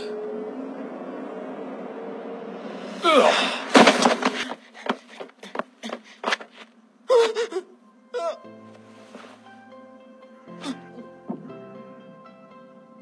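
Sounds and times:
heavy hit: 0.0 - 5.1
running footsteps on dirt: 3.8 - 6.7.

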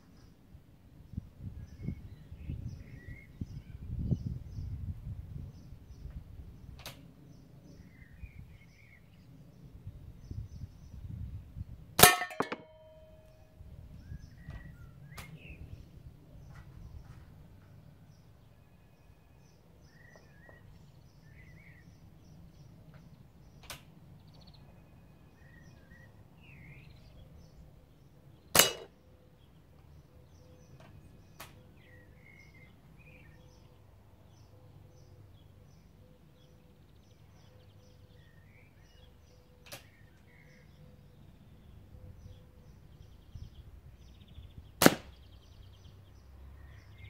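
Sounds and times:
air rifle shot cracks: 28.6 - 28.9, 44.8 - 45.2.

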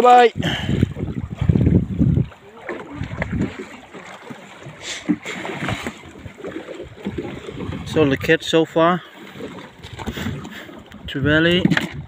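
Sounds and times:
water splashing against boat: 0.0 - 12.0
wind buffeting microphone: 0.3 - 3.7, 5.4 - 8.5, 9.4 - 12.0.

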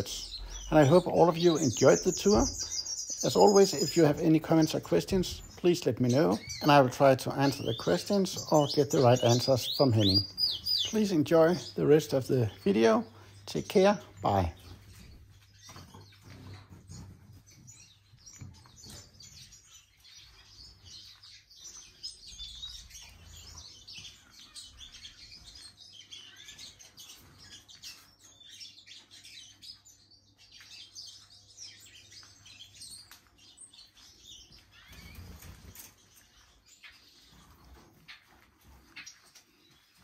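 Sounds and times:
finches chirping and twittering: 0.0 - 40.0.

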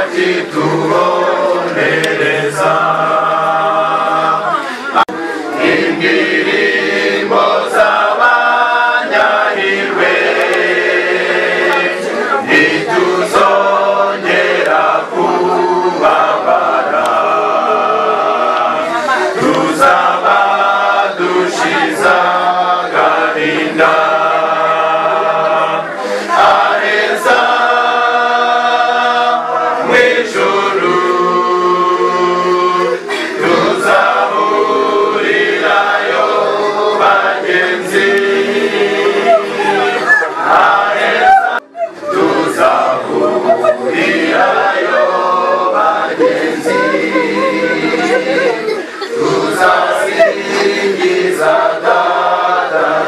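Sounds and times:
choir singing a cappella: 0.0 - 53.0.

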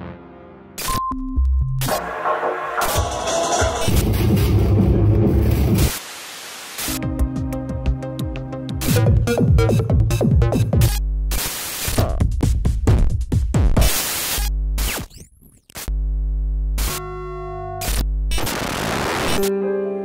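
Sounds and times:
chopped electronic music: 0.8 - 6.0, 6.9 - 15.2
static hiss bursts: 5.7 - 7.0, 11.3 - 12.0, 13.8 - 15.1.

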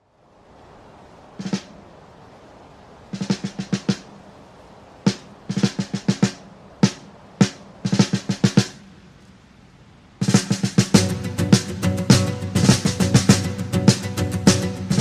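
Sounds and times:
snare drum strokes: 1.4 - 1.8, 3.1 - 4.2, 5.1 - 8.9, 10.2 - 15.0.

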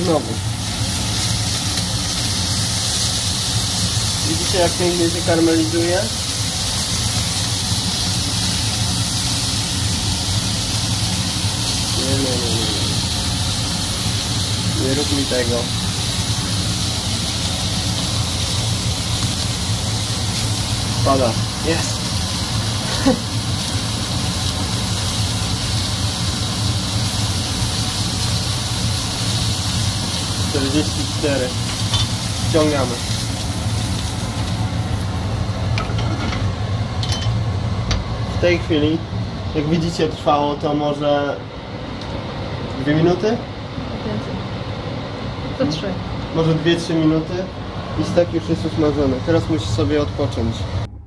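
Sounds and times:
steaks sizzling in frying pan: 0.0 - 37.5
gas burner low rumble: 0.0 - 51.0.

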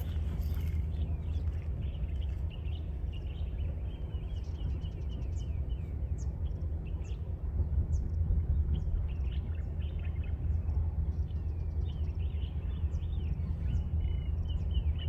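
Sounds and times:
small birds chirping: 0.0 - 7.3
wind rumble on microphone: 0.0 - 15.0.

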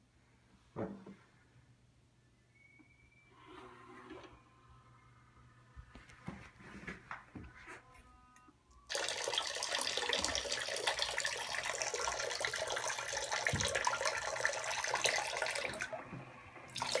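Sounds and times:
toilet flushing water rush: 8.9 - 17.0.

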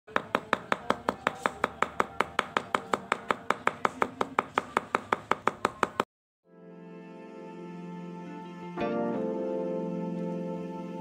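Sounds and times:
wooden mallet knocking: 0.1 - 6.1.

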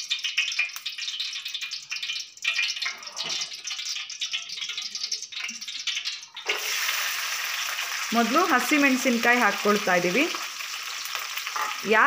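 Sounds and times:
hot oil crackling and popping: 0.0 - 12.0.

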